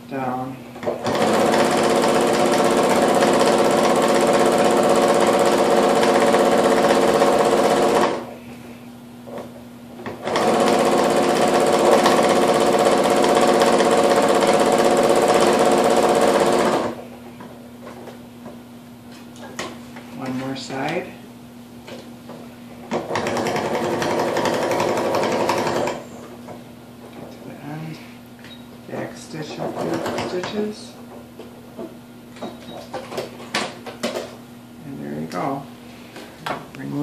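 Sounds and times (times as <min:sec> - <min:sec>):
sewing machine running: 0:00.9 - 0:08.2, 0:10.2 - 0:17.0, 0:23.0 - 0:26.0, 0:29.7 - 0:30.4.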